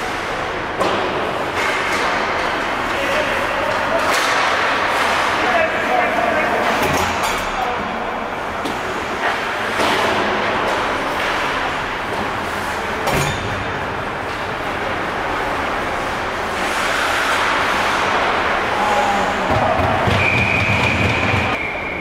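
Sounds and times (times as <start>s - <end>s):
hockey sticks working the puck: 0.0s - 22.0s
skates scraping ice: 1.5s - 6.8s, 14.3s - 21.6s.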